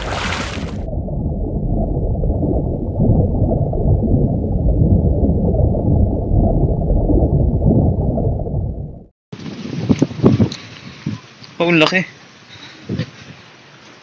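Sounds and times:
muffled low rumble of water: 0:00.0 - 0:09.1.

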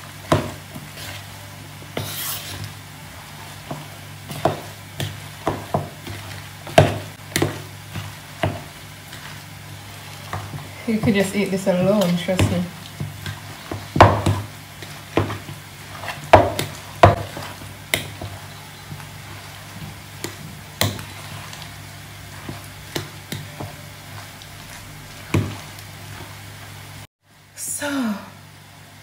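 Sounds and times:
spoon scraping a mixing bowl: 0:01.9 - 0:02.8, 0:10.1 - 0:18.4, 0:19.3 - 0:21.7.

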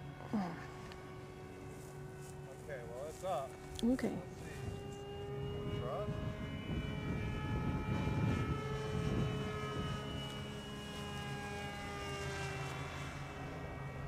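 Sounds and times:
electric motor and propeller whining: 0:00.0 - 0:14.0
wind rumble on microphone: 0:02.7 - 0:11.6.

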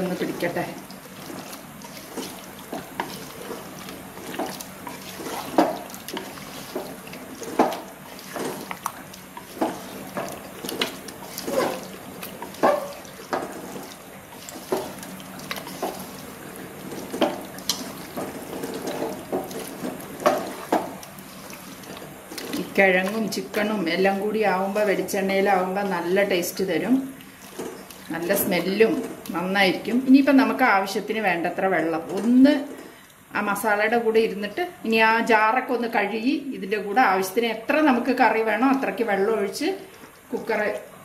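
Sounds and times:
wet squelching and scraping: 0:00.0 - 0:26.2, 0:27.2 - 0:29.3.

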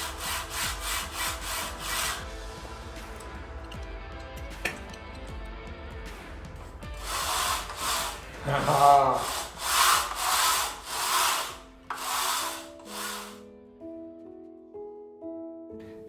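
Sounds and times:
rail carriage rubbing along steel rail: 0:00.0 - 0:02.2, 0:07.0 - 0:13.4.

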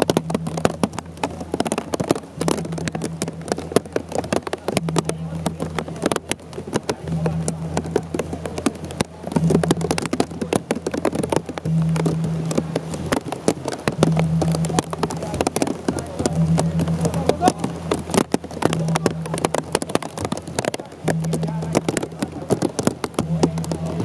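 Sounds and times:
heavy rain on an umbrella: 0:00.0 - 0:24.0
low hum: 0:00.0 - 0:24.0.

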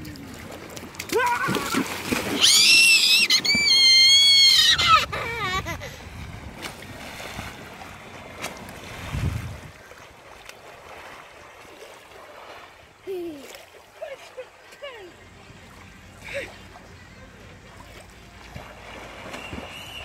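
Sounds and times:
water splashing and sloshing: 0:00.0 - 0:20.0
big splash into water: 0:01.0 - 0:04.2, 0:18.6 - 0:20.0
person yelling: 0:01.1 - 0:01.8.

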